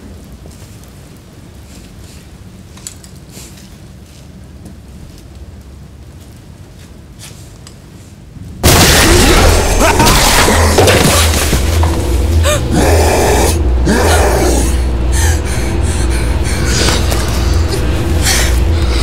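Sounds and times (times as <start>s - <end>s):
low hum: 8.4s - 19.0s
loud low drone: 8.6s - 19.0s
wailing growling creature cries: 12.4s - 19.0s.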